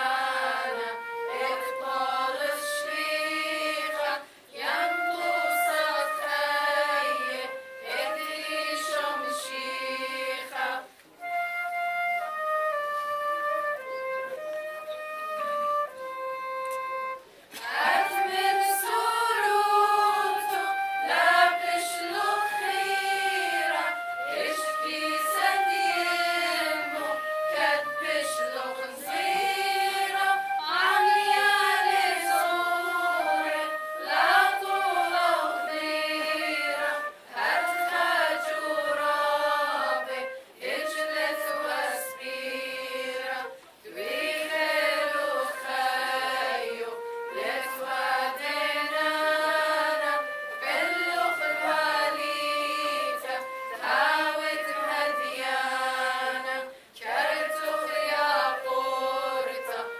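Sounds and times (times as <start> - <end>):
women's choir singing a hymn: 0.0 - 11.0, 17.5 - 59.9
flute: 0.0 - 59.9.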